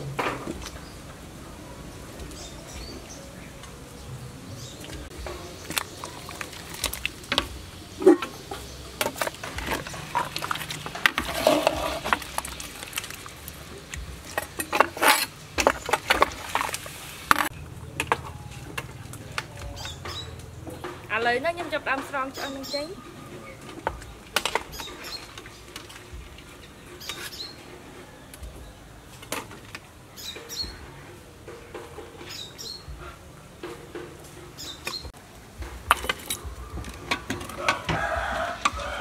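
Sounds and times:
metal ladle clanking in pot: 5.3s - 13.2s.

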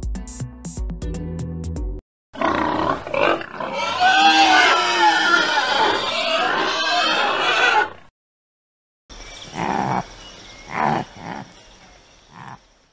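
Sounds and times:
pig squealing and grunting: 2.4s - 8.0s, 9.5s - 10.0s, 10.7s - 11.5s, 12.3s - 12.6s.

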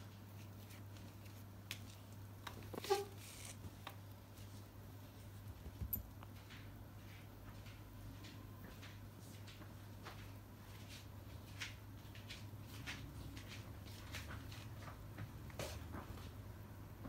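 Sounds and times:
kitten paws scratching fabric: 0.0s - 7.4s, 10.2s - 16.3s.

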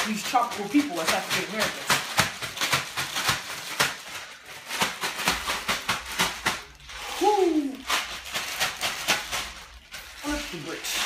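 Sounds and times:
ice rattling in shaken bag: 0.0s - 11.0s
voice sliding down in pitch: 7.0s - 7.8s.

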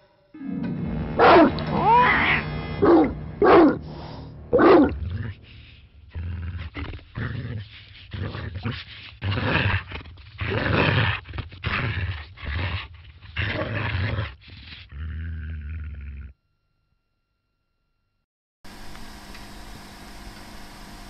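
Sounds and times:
dog barking and growling: 1.1s - 16.3s.

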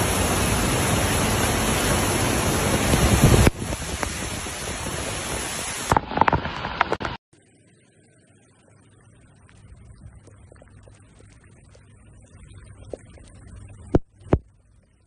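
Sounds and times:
storm water rushing: 0.0s - 7.2s.

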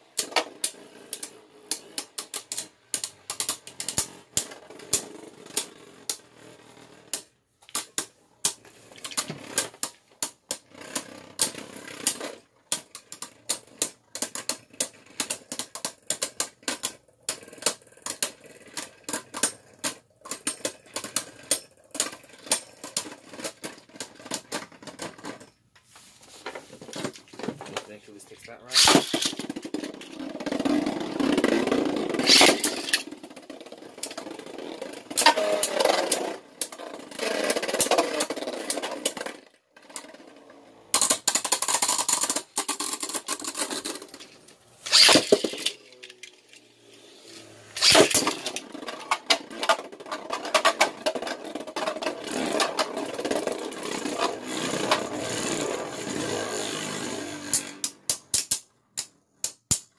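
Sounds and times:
spinning tops whirring and scraping: 0.1s - 58.5s
spinning tops clattering together: 27.2s - 40.1s, 40.7s - 59.9s.

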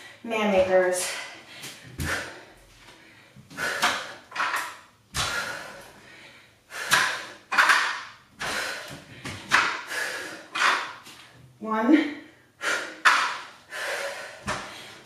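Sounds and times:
person breathing hard: 0.0s - 0.2s, 1.0s - 4.3s, 5.2s - 7.5s, 8.4s - 10.9s, 12.4s - 15.0s.

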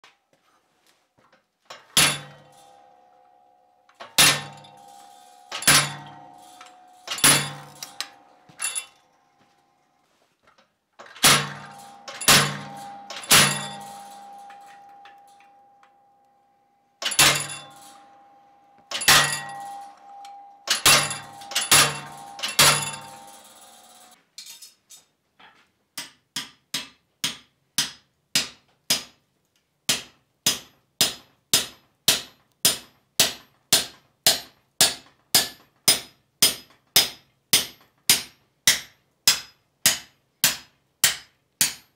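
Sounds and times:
hammer striking hot punch: 7.1s - 8.2s, 11.2s - 15.4s.

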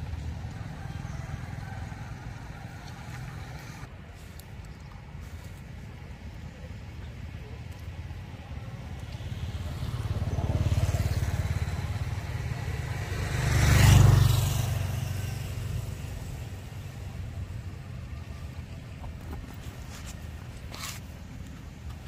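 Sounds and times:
vehicle engine passing by: 9.1s - 17.1s.

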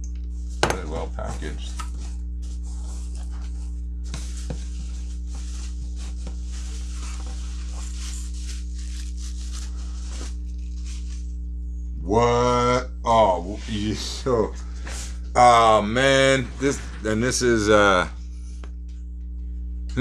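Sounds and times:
low electrical hum: 0.0s - 20.0s
package tearing and crinkling: 7.2s - 11.2s.

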